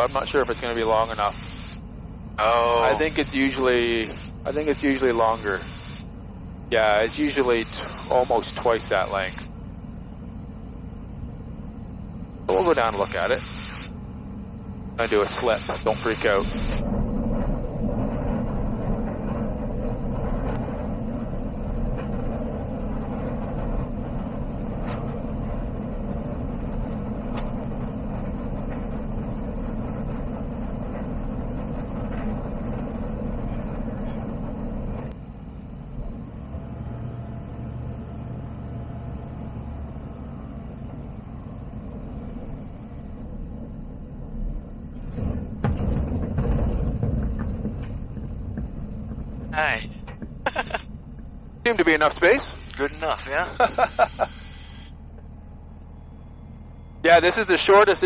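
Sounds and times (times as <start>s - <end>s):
light aircraft engine: 0.0s - 58.0s
tyres rolling on gravel: 45.1s - 54.7s.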